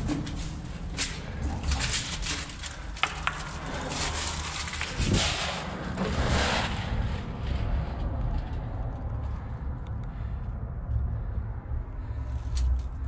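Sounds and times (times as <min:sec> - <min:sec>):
dry leaves rustling and crunching: 0:00.0 - 0:07.6
low steady rumble: 0:03.4 - 0:13.0.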